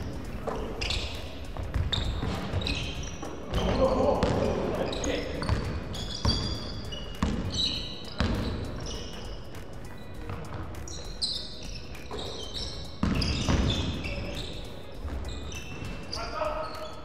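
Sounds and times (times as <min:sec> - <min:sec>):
sneakers squeaking: 0:00.0 - 0:17.0
basketball bouncing on wooden floor: 0:00.4 - 0:04.6, 0:05.4 - 0:08.9, 0:13.0 - 0:14.1.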